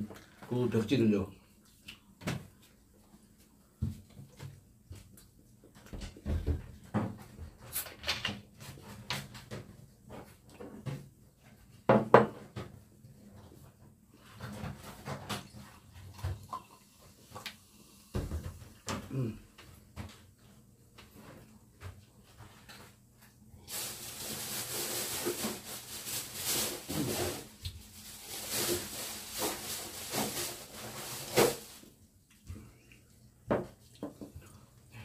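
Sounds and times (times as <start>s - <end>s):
cola pouring into mug: 16.4s - 17.9s.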